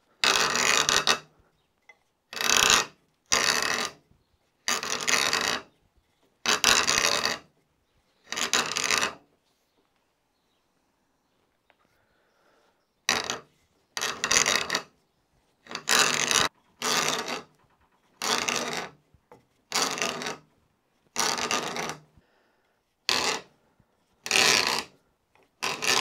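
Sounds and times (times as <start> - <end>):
hand auger rasping into wood: 0.0 - 1.6, 2.3 - 9.2, 13.0 - 22.2, 23.0 - 26.0.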